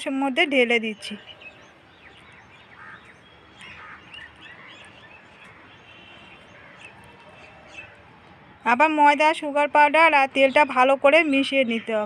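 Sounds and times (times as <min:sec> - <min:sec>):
faint small birds chirping: 0:00.6 - 0:08.8.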